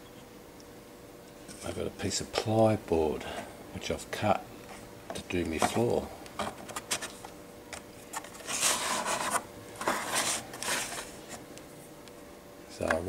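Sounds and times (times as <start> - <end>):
plastic scraping on plywood: 8.1 - 11.4.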